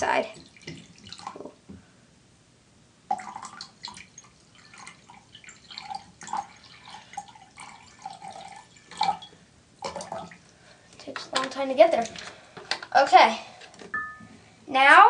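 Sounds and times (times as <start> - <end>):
liquid trickling and dripping: 0.0 - 1.6, 3.1 - 12.9.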